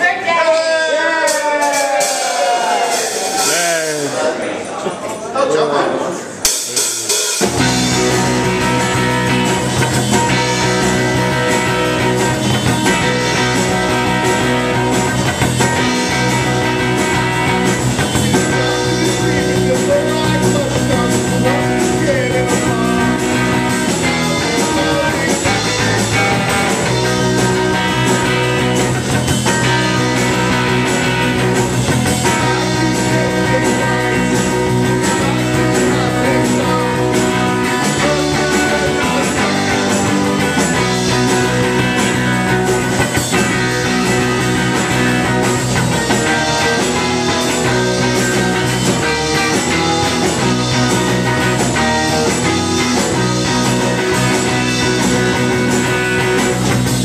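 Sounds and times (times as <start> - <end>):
live rock band playing: 0.0 - 4.8, 5.9 - 57.0
electric guitar strummed: 6.4 - 57.0
man singing into microphone: 18.6 - 23.4, 24.2 - 25.9, 32.4 - 34.4, 35.2 - 37.1, 37.7 - 40.6.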